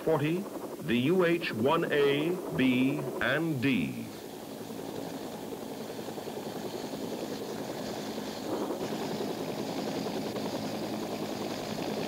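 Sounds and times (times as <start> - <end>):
helicopter rotor chopping: 0.0 - 12.0.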